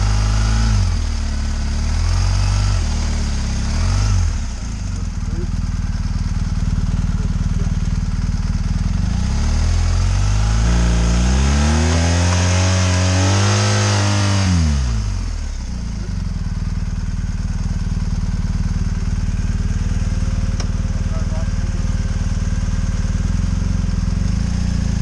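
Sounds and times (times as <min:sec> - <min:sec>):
motorcycle engine idling and revving: 0:00.0 - 0:25.0.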